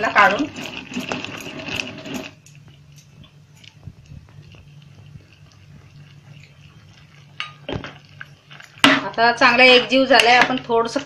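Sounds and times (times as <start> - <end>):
low steady hum: 0.0 - 11.0
soft wet squelches: 2.4 - 10.7.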